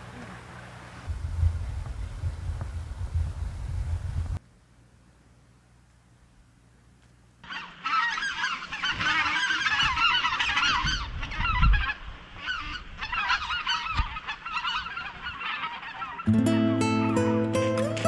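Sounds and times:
low rumble: 1.1s - 4.4s
geese honking: 7.4s - 16.6s.

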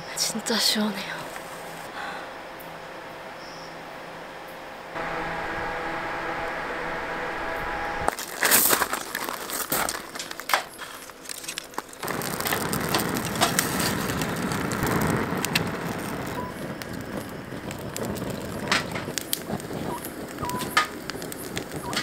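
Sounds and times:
wood fire crackling: 0.0s - 2.2s, 4.9s - 22.0s
dry leaves and twigs crunching: 8.1s - 16.3s.

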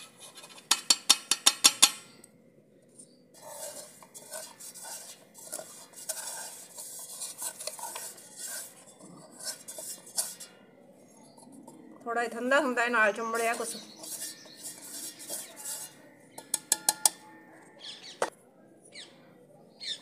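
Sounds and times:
sharp metallic taps on jar: 0.7s - 2.1s, 16.4s - 17.3s
powder scraping and rustling: 2.9s - 17.0s.

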